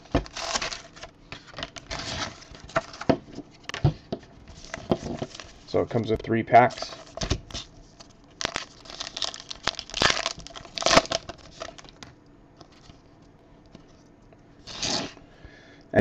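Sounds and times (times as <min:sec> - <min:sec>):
plastic wrapper tearing and crinkling: 0:00.1 - 0:03.1, 0:06.8 - 0:12.1.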